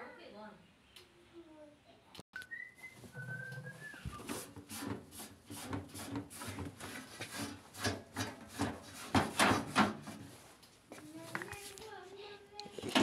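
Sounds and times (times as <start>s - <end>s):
high whistle-like chirp: 2.4s - 4.3s
scratchy rubbing strokes: 3.6s - 9.3s.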